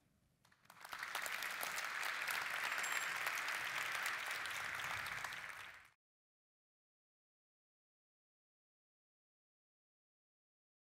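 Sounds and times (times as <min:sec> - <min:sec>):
crowd clapping: 0:00.4 - 0:06.0.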